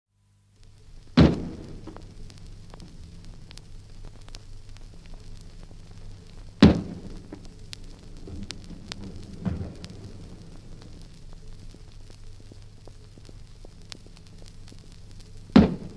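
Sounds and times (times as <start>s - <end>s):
record low hum and clicks: 0.2s - 15.9s
cannon booms: 1.2s - 1.9s, 6.6s - 7.4s, 8.2s - 11.0s, 15.5s - 15.9s.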